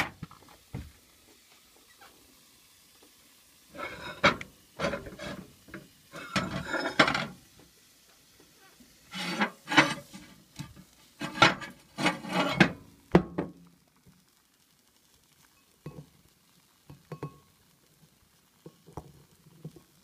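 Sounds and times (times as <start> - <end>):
bowl scraping on glass turntable: 3.7 - 5.5, 6.1 - 7.3, 9.1 - 12.8.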